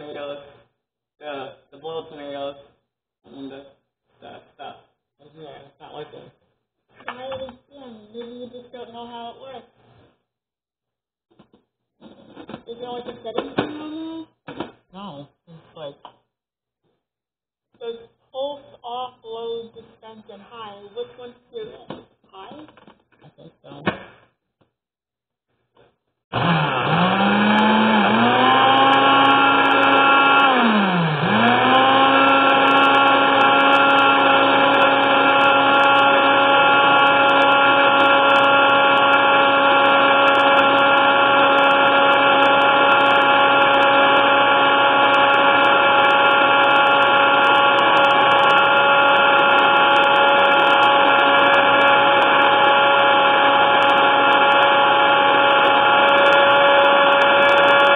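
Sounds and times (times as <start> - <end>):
blender motor running: 26.3 - 57.9.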